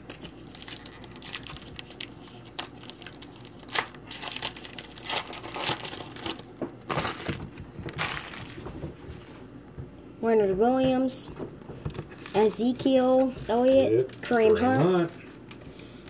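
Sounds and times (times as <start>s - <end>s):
wrapper crinkling and tearing: 0.0s - 8.7s, 12.1s - 15.8s.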